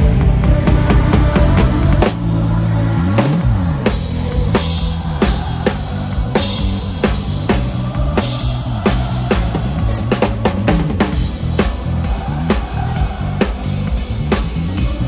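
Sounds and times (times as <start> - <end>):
low bass notes sliding: 0.0 - 15.0.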